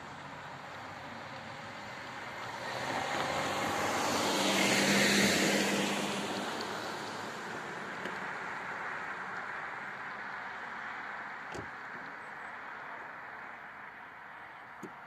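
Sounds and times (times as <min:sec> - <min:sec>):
car driving past: 0:02.3 - 0:08.5.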